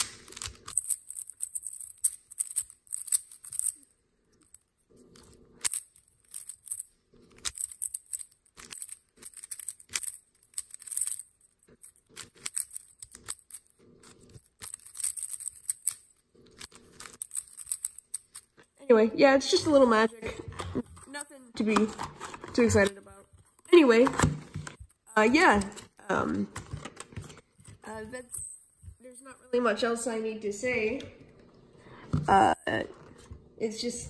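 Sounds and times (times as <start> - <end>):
plastic puzzle cube clicking: 0.0 - 3.8.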